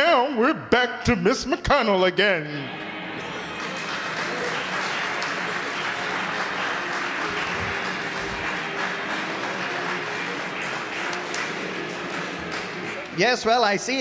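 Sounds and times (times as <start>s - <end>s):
audience clapping: 3.2s - 14.0s.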